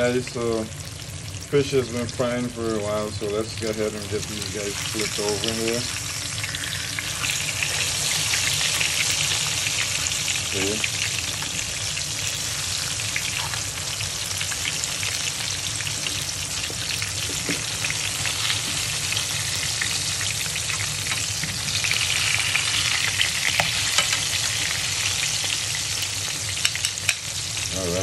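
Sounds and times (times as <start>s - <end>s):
fish sizzling in hot oil: 0.0s - 28.0s
metal tongs clicking on pan: 23.5s - 24.3s, 26.0s - 27.3s.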